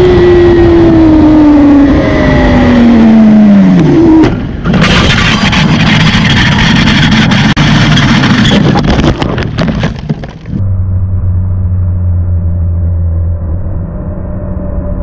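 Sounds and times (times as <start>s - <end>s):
low droning tone: 0.0s - 9.2s, 10.3s - 15.0s
wind roar: 0.0s - 15.0s
motorcycle scraping along road: 4.2s - 10.6s.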